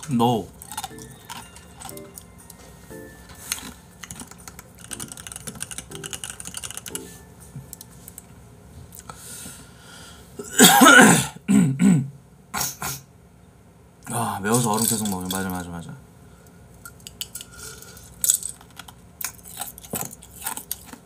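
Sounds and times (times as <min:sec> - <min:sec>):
cough and throat clearing: 0:10.4 - 0:13.1.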